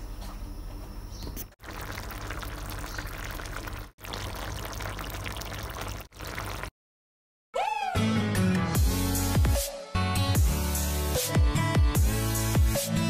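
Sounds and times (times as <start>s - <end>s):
sauce simmering and bubbling: 1.6s - 6.7s.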